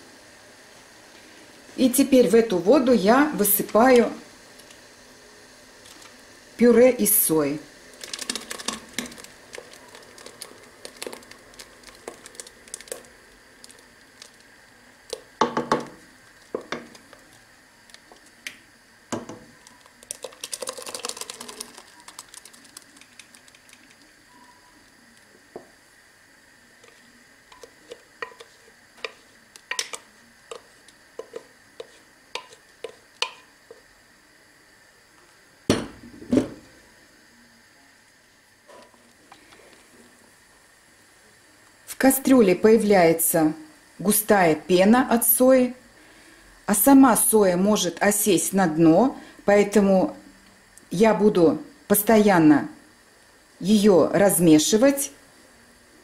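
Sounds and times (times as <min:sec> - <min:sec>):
wooden spoon knocking in pot: 0:15.4 - 0:16.0, 0:27.6 - 0:33.5
spoon scraping blender jug: 0:26.8 - 0:33.4.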